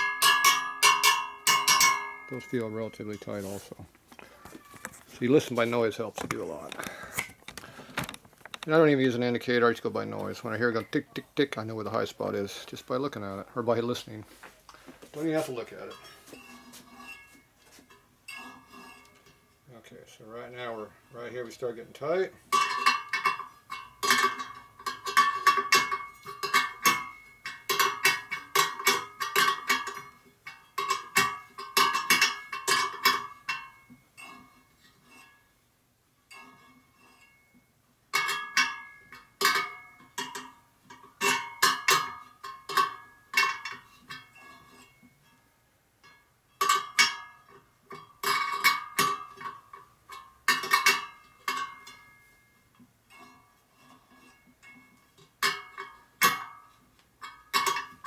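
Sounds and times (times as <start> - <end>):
wrench pinging metal spokes: 0.0 - 3.4, 22.5 - 35.3, 53.1 - 58.0.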